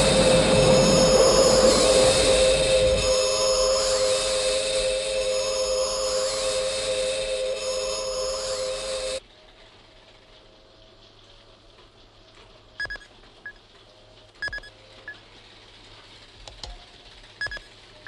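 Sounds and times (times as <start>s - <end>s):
faint steady hum: 0.0s - 9.5s.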